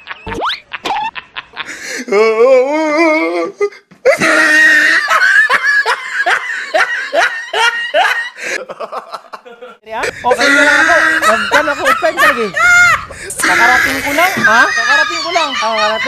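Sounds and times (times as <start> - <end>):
person laughing loudly: 0.0 - 2.3, 4.1 - 16.0.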